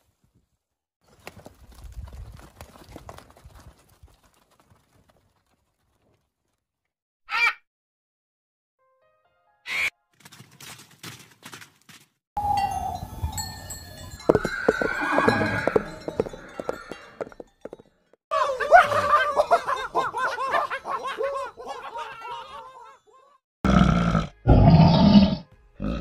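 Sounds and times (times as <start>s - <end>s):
horse whinnying: 14.3s - 17.4s.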